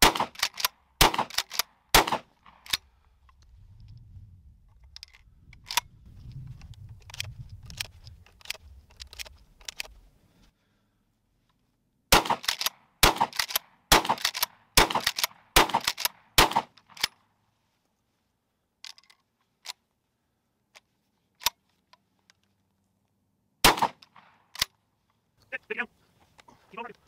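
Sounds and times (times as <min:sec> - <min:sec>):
shotgun shots: 0:00.0 - 0:02.6, 0:12.1 - 0:16.8, 0:23.6 - 0:24.4
shotgun pump clacking: 0:00.1 - 0:02.9, 0:04.7 - 0:10.0, 0:12.2 - 0:17.2, 0:23.9 - 0:24.7.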